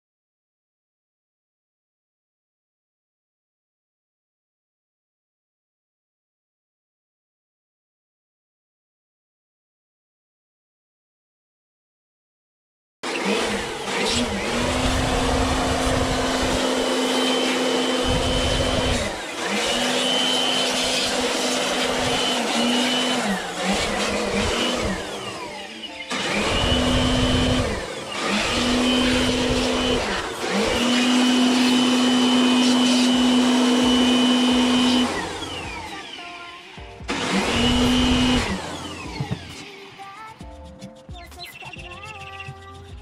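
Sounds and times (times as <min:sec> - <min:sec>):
vacuum cleaner running: 0:13.0 - 0:40.0.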